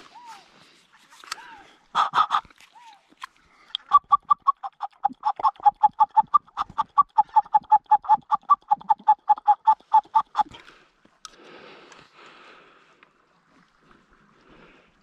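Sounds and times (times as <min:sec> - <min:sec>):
goose call clucks: 0:01.4 - 0:02.6, 0:03.8 - 0:10.6.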